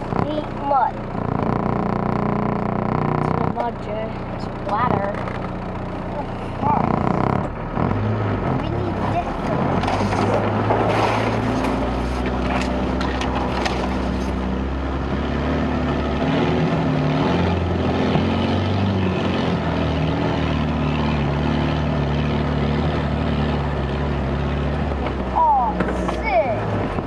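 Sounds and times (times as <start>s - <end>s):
car engine droning at low revs: 0.0s - 27.0s
sharp clicks: 1.1s - 3.7s.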